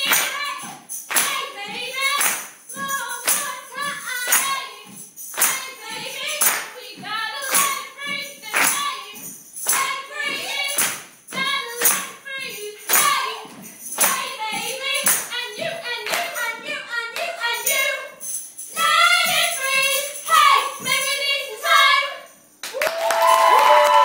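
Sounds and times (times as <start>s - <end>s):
women singing: 0.0s - 22.3s
tambourine struck in rhythm: 0.0s - 24.0s
applause: 6.4s - 6.7s, 22.6s - 24.0s.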